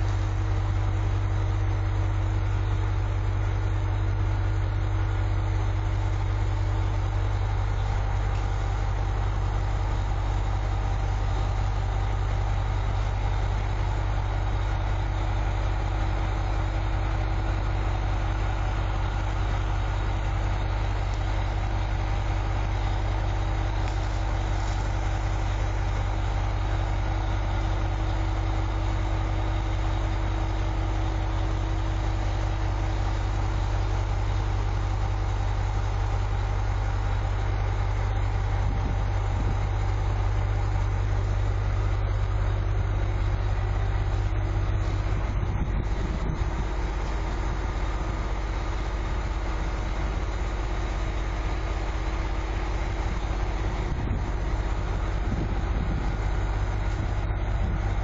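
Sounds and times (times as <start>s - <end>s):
diesel railcar engine idling: 0.0s - 58.0s.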